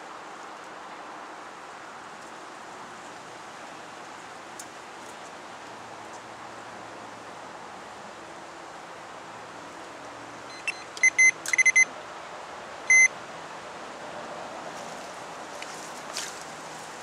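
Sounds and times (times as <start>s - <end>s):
electronic bite alarm beeping: 10.5s - 11.9s, 12.9s - 13.1s.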